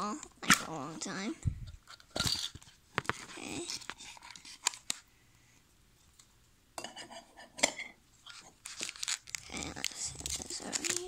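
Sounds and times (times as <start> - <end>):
packaging clicks and rustling: 8.2 - 11.0.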